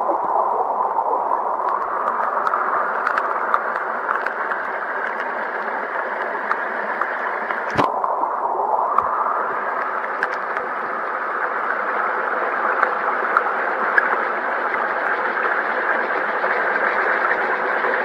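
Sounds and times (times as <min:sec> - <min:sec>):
stream water rushing: 0:00.0 - 0:18.0
small ticks: 0:01.7 - 0:05.4.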